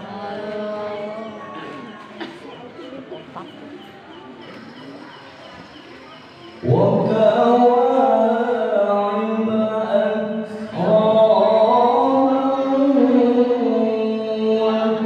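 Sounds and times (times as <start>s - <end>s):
man chanting through a microphone: 6.6s - 15.0s.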